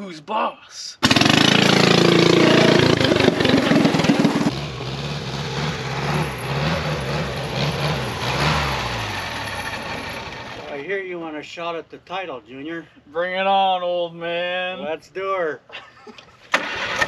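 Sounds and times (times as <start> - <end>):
garden tractor engine running: 1.0 - 10.8, 16.5 - 17.0.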